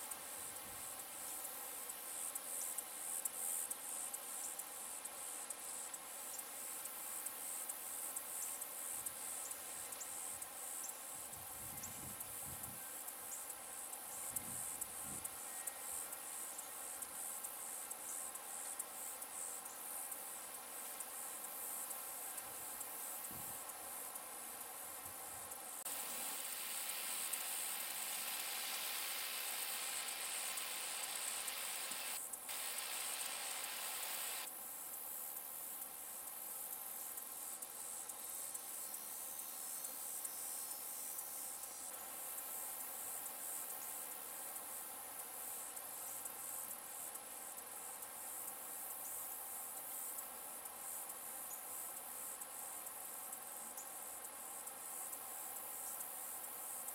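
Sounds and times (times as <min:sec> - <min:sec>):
insects chorus pulsing: 0:00.0 - 0:35.0.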